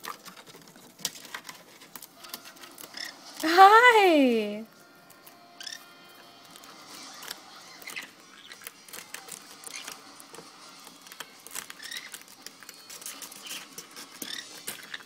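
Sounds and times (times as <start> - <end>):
claws scratching cardboard: 0.0 - 3.4, 6.4 - 15.0
parrot chirps: 2.8 - 3.4, 5.4 - 6.1, 11.5 - 15.0.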